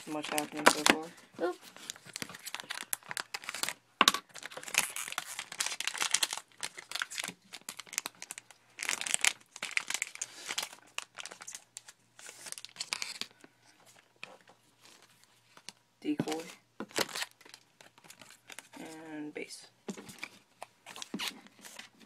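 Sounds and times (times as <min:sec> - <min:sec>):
wrappers crinkling and tearing: 0:00.0 - 0:13.4, 0:16.4 - 0:19.0.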